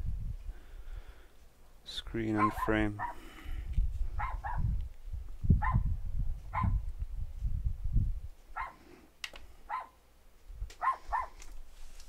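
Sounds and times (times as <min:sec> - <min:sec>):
dog barking in high yaps: 0:02.4 - 0:03.2, 0:04.2 - 0:04.7, 0:05.6 - 0:05.9, 0:06.5 - 0:06.8, 0:08.6 - 0:08.8, 0:09.7 - 0:10.0, 0:10.8 - 0:11.4.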